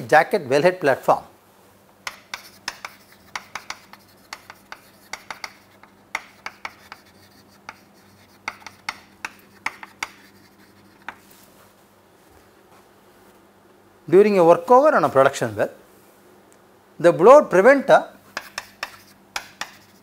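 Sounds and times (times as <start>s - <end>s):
chalk tapping and scratching: 2.0s - 11.7s, 18.3s - 20.0s.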